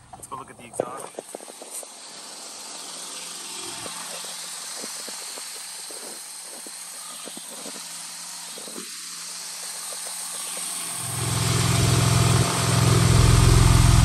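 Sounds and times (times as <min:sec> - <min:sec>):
footsteps on paving stones: 0:00.0 - 0:02.0
car engine idling: 0:09.3 - 0:14.0.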